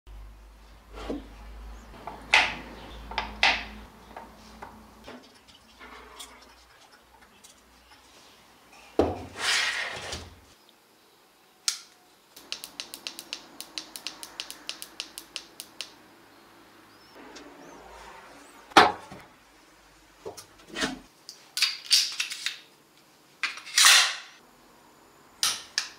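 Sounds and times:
button clicking rapidly: 12.4 - 16.0.

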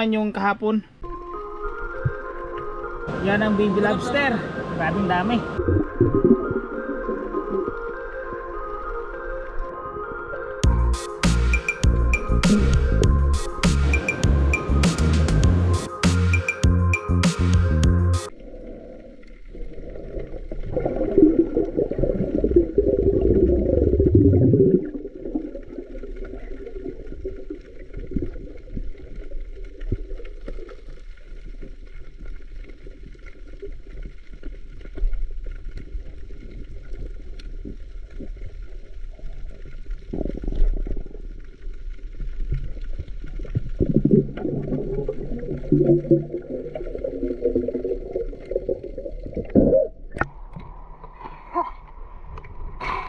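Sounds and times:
underwater rumbling and gurgling: 1.0 - 3.9, 4.5 - 10.8, 18.3 - 53.0.

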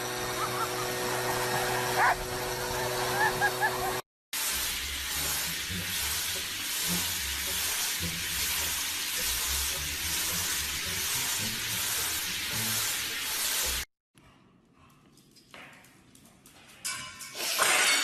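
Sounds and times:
shower head spraying water: 4.4 - 13.9.

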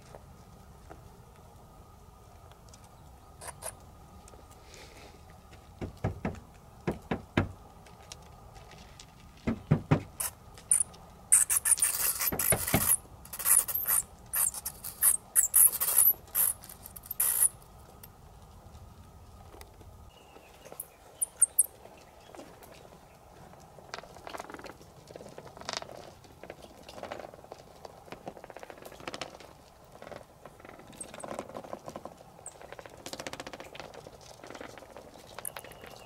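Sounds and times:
knocks: 5.8 - 7.6, 9.4 - 10.1
bats scrabbling against boards: 9.1 - 17.5
bats squeaking: 10.2 - 17.5, 21.2 - 21.7.

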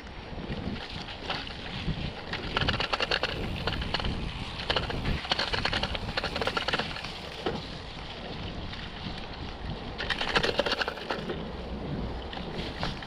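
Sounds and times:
bike rattling clicks: 0.0 - 13.0
wind on microphone: 0.0 - 13.0.

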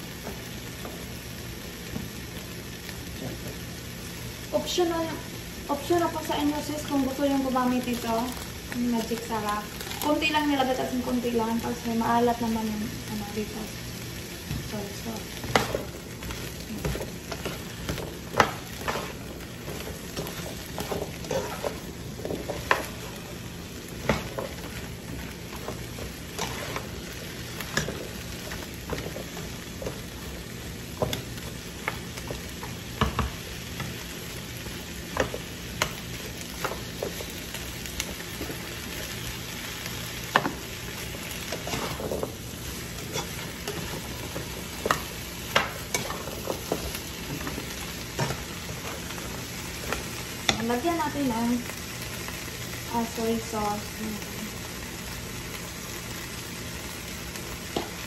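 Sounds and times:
vegetables sizzling in a pan: 0.0 - 58.0
spatula clacking and scraping pan: 15.4 - 23.0, 41.5 - 42.3, 43.0 - 49.1.

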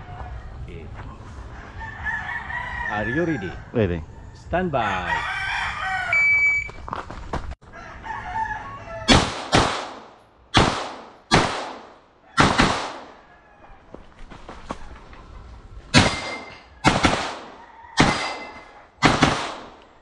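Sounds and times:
gunshots: 9.1 - 13.2, 15.9 - 19.8.

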